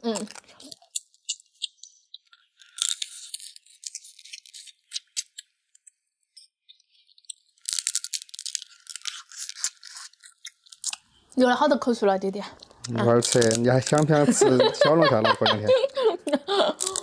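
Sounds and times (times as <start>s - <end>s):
people chewing wetly: 0.0s - 5.6s, 12.6s - 15.0s, 15.6s - 17.0s.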